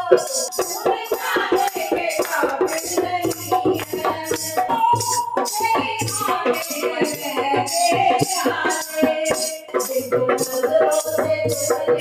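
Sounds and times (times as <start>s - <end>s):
dholak drum: 0.0s - 12.0s
jingling percussion: 0.0s - 12.0s
woman singing into a microphone: 0.0s - 12.0s
hand-clapping: 1.6s - 5.2s.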